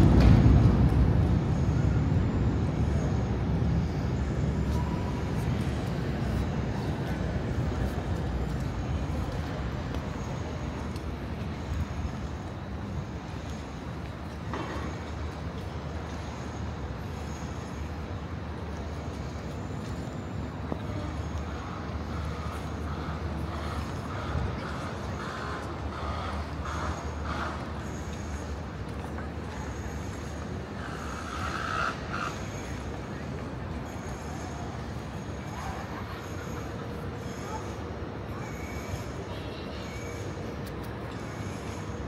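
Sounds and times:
low rumble of traffic: 0:00.0 - 0:42.0
faint distant voices: 0:18.5 - 0:42.0.

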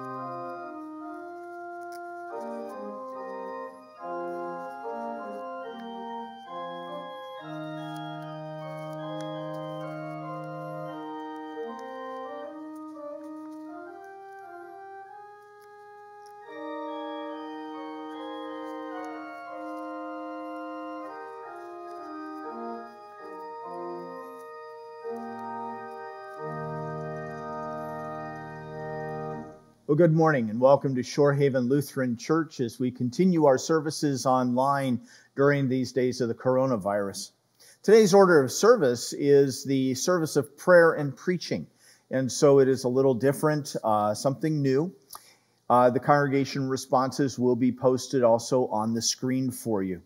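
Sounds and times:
church organ playing chords: 0:00.0 - 0:31.8.

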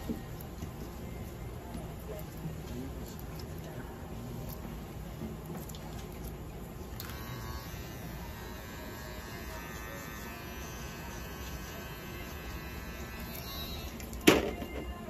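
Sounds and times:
handheld electric device buzzing: 0:07.0 - 0:14.2.

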